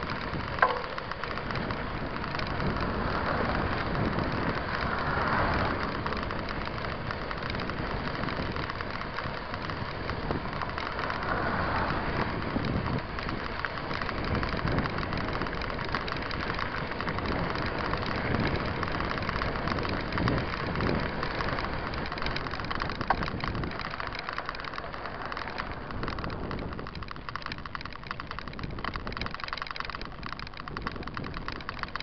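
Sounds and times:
bike rolling on gravel rattling: 0.0s - 32.0s.

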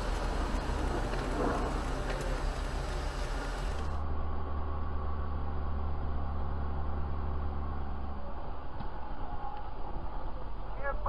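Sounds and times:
vehicle road and engine drone: 0.0s - 11.0s.

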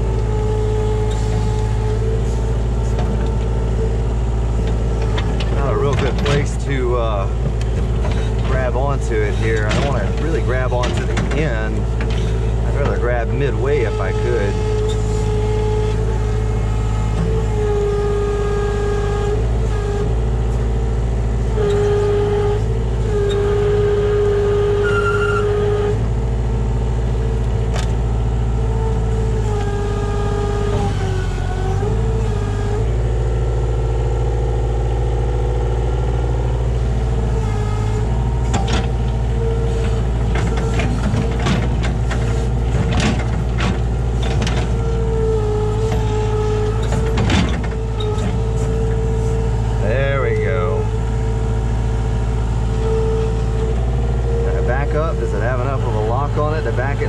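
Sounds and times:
diesel engine running under load: 0.0s - 57.0s
hydraulic whine: 0.0s - 57.0s
sharp knocks and clanks: 4.6s - 6.6s, 7.3s - 13.2s, 38.4s - 39.1s, 39.8s - 44.8s, 46.7s - 49.0s.

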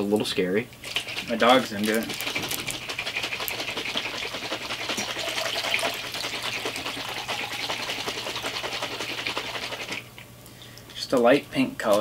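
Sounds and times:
water pouring into plastic cup: 0.9s - 10.1s.

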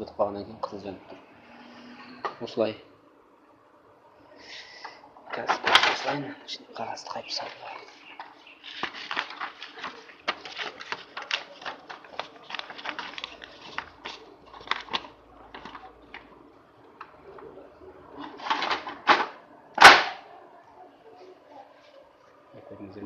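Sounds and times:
paper rustling: 7.2s - 16.4s, 18.2s - 20.0s.

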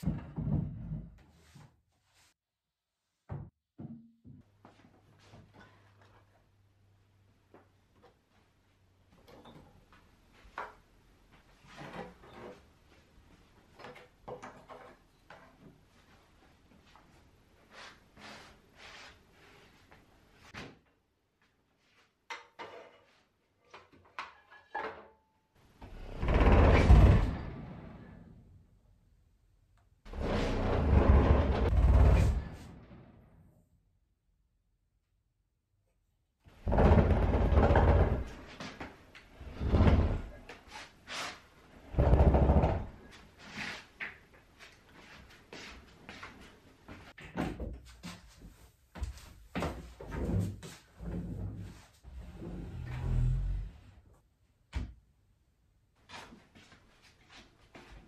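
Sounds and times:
pottery wheel scraping wooden floor: 25.8s - 28.3s, 30.1s - 33.0s, 36.6s - 43.9s, 50.1s - 54.0s
pottery wheel scraping across floorboards: 30.1s - 32.9s
light scuffs on floor: 47.8s - 51.0s.

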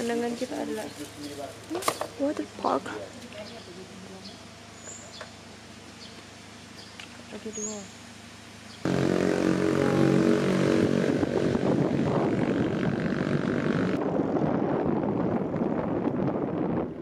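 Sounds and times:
car engine hum: 0.0s - 14.1s
road noise: 0.0s - 17.0s
wind rushing over microphone: 8.9s - 17.0s.

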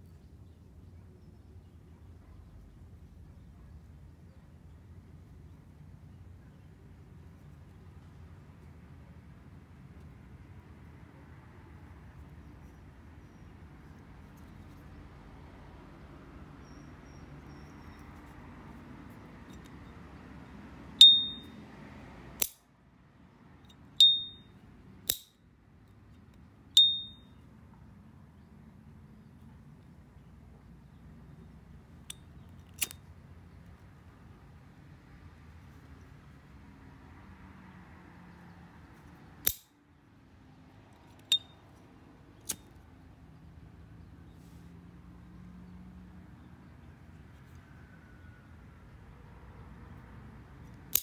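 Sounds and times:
lighter lid ringing ping: 21.0s - 21.6s, 24.0s - 24.4s, 26.8s - 27.3s.

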